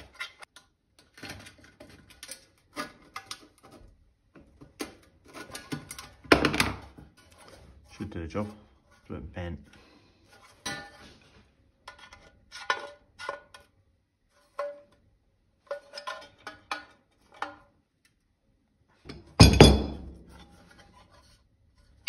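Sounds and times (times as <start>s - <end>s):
metal clang: 19.1s - 20.2s.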